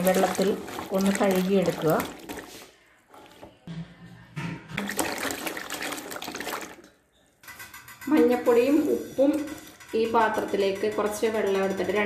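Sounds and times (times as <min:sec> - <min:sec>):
water sloshing in bowl: 0:00.0 - 0:03.4, 0:04.7 - 0:06.9.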